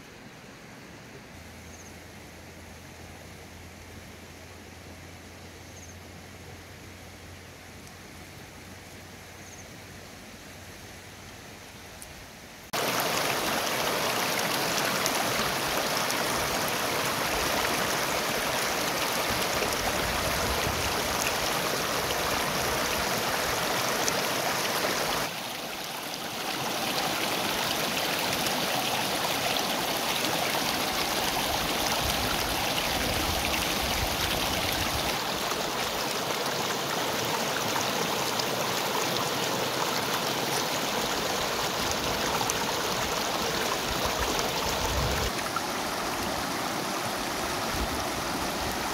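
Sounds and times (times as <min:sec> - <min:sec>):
river rapids rushing: 0:12.8 - 0:48.9.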